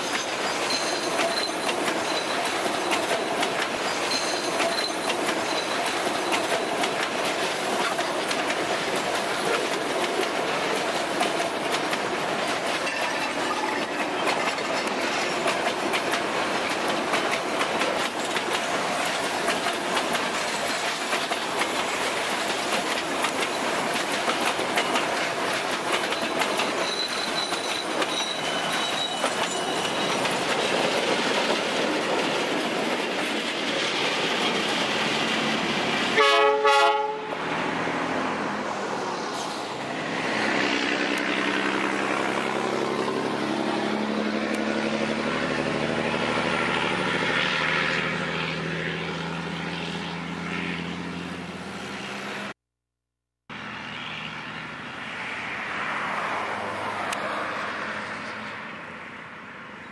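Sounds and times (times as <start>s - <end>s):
high wheel squeal: 0.0s - 3.1s, 3.8s - 6.7s, 26.0s - 31.0s
wheels clicking over rail joints: 0.0s - 36.0s
freight train rumbling and rattling: 0.0s - 52.4s.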